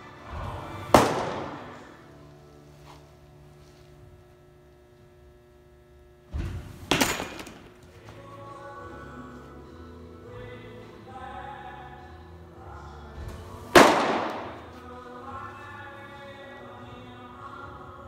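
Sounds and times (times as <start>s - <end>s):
background music: 0.0s - 4.2s, 7.8s - 18.0s.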